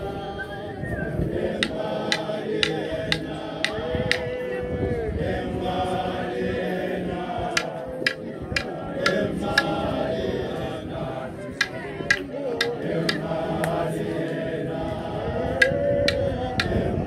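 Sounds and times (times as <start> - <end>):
group of voices singing: 0.0 - 17.0
sharp percussive beats: 1.6 - 4.2, 7.6 - 9.7, 11.6 - 13.3.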